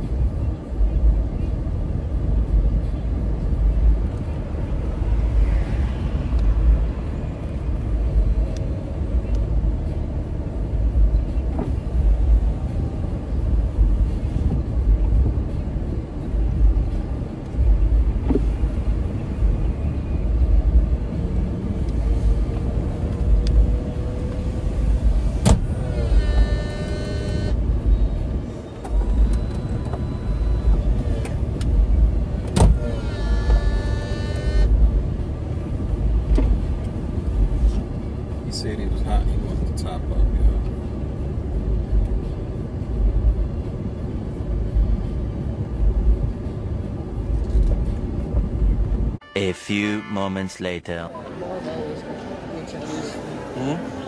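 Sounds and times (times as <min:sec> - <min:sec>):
road and engine rumble: 0:00.0 - 0:54.0
brief pitched tone: 0:49.2 - 0:51.6.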